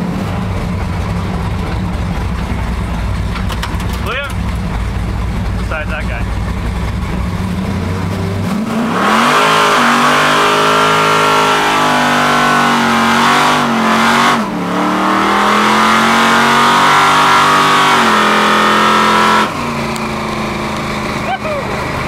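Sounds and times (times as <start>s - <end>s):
car engine revving hard: 4.0s - 22.0s.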